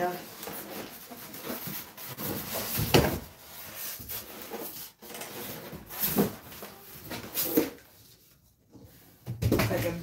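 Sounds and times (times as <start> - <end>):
cardboard and foam scraping: 0.0 - 7.8.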